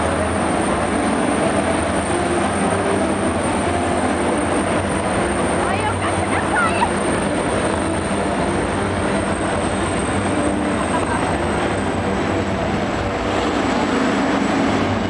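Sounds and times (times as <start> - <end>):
stadium crowd murmur: 0.0 - 7.7
helicopter engines and rotor: 0.0 - 15.0
high whine: 0.0 - 15.0.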